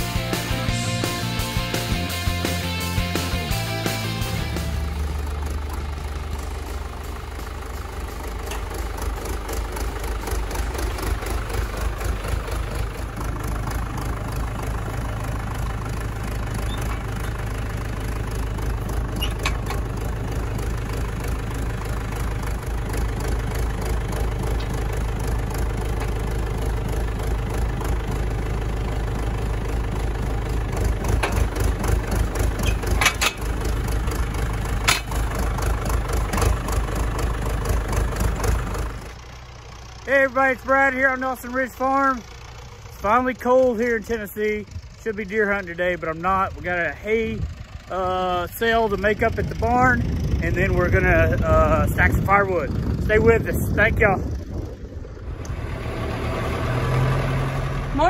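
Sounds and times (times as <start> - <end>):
diesel tractor engine idling: 0.0 - 58.0
short metal clanks: 19.2 - 19.9, 32.6 - 33.6, 34.8 - 35.2.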